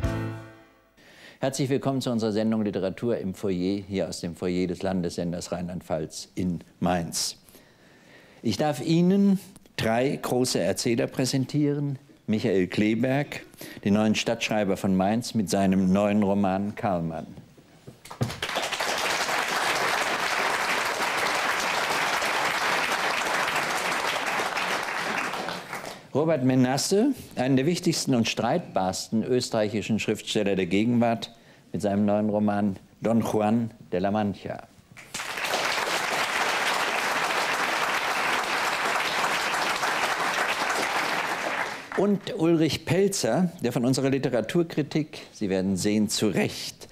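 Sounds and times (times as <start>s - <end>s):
audience applauding: 18.1s - 26.0s, 35.0s - 42.1s.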